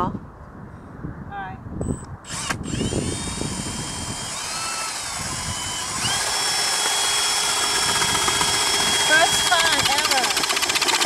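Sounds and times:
drill motor whine boring ice: 2.2 - 11.0.

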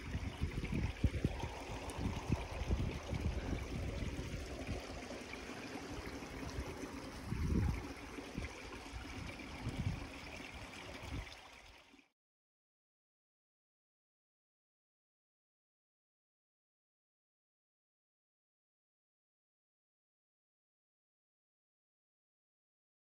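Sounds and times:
wind buffeting microphone: 0.0 - 5.2, 5.9 - 11.3
rushing water: 0.0 - 12.1.

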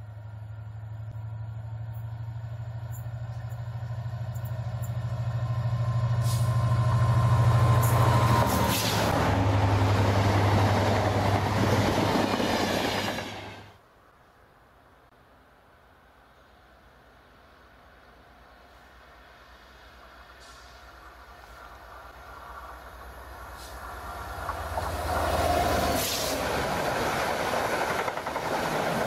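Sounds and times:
train wheel and rail noise: 0.0 - 13.9, 15.3 - 29.0
diesel locomotive engine hum: 0.0 - 29.0.

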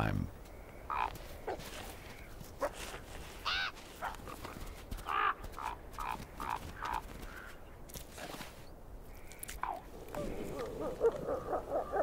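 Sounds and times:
wolves yelping and whining: 10.2 - 12.0.

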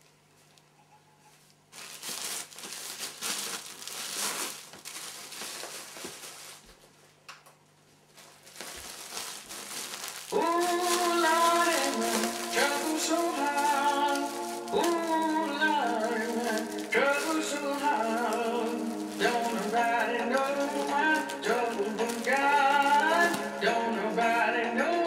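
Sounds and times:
plastic bag crinkling: 1.5 - 7.2, 7.9 - 25.0
music with singing: 10.3 - 25.0.

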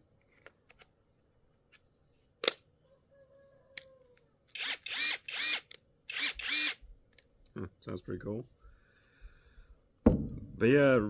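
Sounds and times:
impact wrench motor whine: 4.6 - 6.8.

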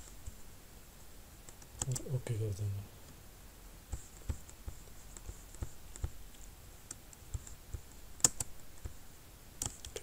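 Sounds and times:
computer mouse and keyboard clicks: 1.4 - 2.1, 3.9 - 9.0, 9.6 - 10.0.

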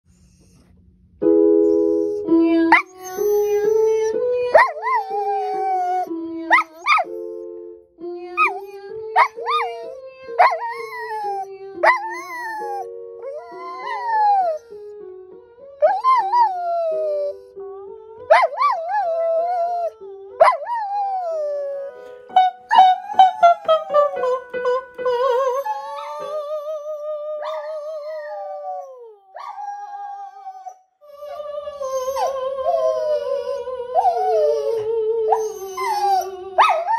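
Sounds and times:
simple melody of held notes: 1.2 - 36.9
dog howling: 2.8 - 7.1, 8.4 - 14.7, 22.7 - 36.9.

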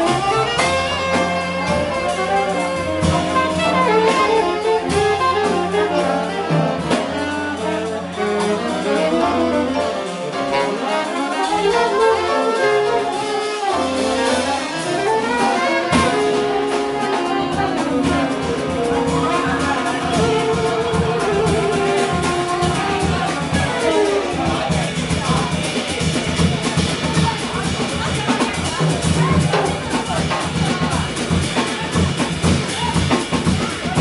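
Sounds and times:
saxophones and trombone: 0.0 - 25.3
jazz band playing: 0.0 - 34.0.

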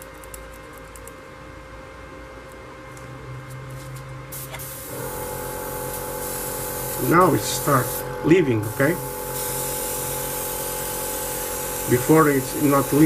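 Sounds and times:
airbrush air hiss: 4.3 - 13.0.

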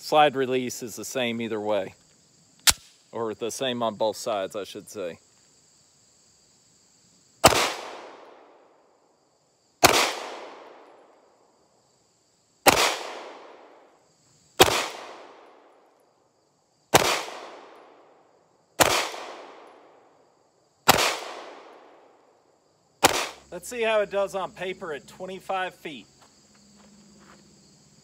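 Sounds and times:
pistol shots with echo: 7.4 - 8.5, 9.8 - 10.9, 12.7 - 13.8, 14.6 - 15.7, 16.9 - 18.0, 18.8 - 19.9, 20.9 - 21.8, 23.0 - 23.4.

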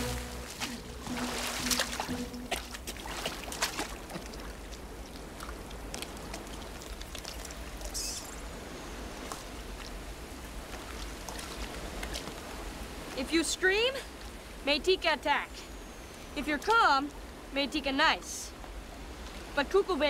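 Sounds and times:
small water splashes: 0.0 - 13.2
river water sloshing and trickling: 0.0 - 14.7, 18.5 - 19.6.

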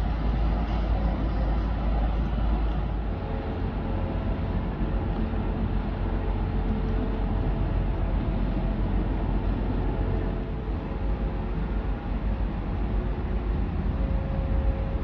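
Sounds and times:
faint hum: 0.0 - 15.0
ship propellers churning water: 0.0 - 15.0.

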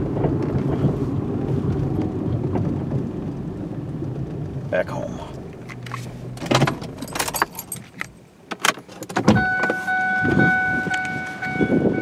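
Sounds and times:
clicks and knocks of car controls: 5.4 - 11.7
car warning chime pulsing: 9.3 - 12.0.

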